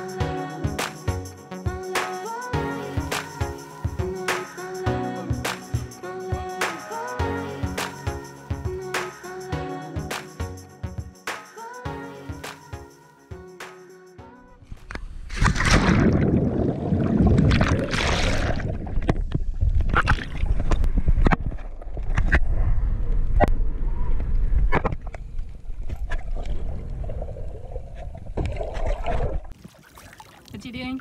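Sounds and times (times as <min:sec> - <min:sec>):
underwater gurgling and bubbling: 0:15.3 - 0:21.2
water splashing around swimmer: 0:28.4 - 0:31.0.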